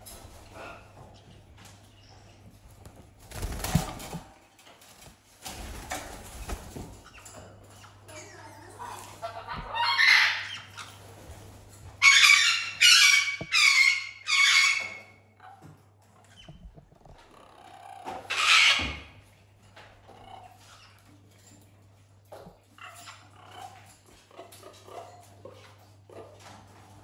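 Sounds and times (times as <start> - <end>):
parrots screeching: 7.0 - 11.0, 12.0 - 15.2, 17.4 - 19.2.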